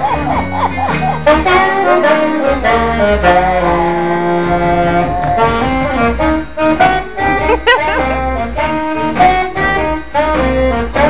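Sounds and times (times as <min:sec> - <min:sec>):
saxophone honking bluesy jazz: 0:00.0 - 0:11.0
low bass line: 0:02.5 - 0:09.9.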